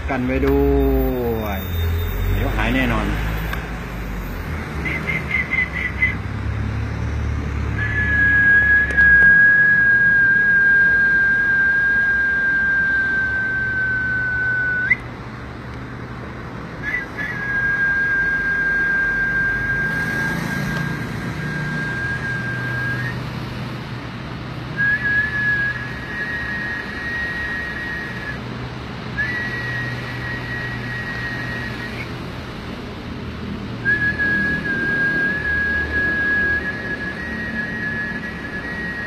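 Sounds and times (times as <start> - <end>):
person whistling held notes: 4.8 - 6.2, 7.8 - 15.1, 16.8 - 23.3, 24.8 - 28.4, 29.2 - 32.1, 33.8 - 39.0.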